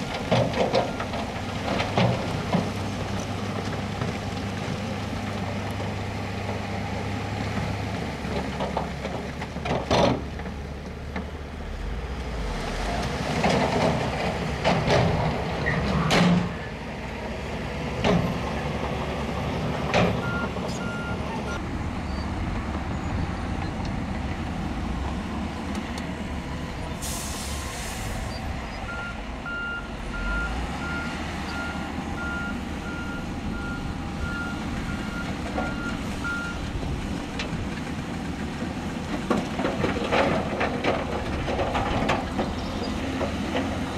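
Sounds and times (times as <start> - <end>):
diesel engines running: 0.0 - 43.9
reversing alarm beeping: 20.2 - 21.6, 28.3 - 36.6
air brake hiss: 27.0 - 28.5.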